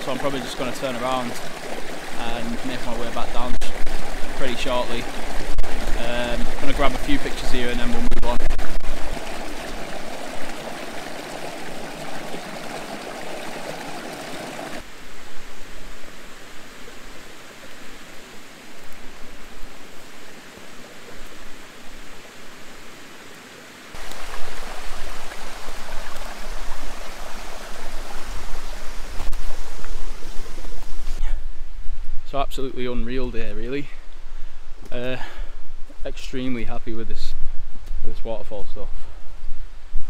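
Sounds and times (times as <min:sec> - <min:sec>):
stream rushing over rocks: 0:00.0 - 0:15.0, 0:16.3 - 0:31.2.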